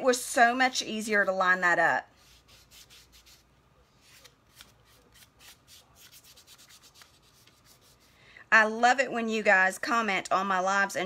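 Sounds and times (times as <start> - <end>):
palm rubbing transfer onto board: 2.2 - 8.1.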